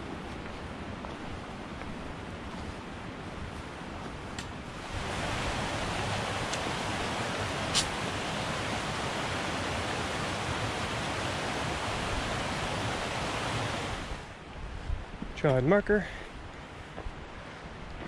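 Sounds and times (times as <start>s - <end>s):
creek rushing over rocks: 4.7s - 14.4s.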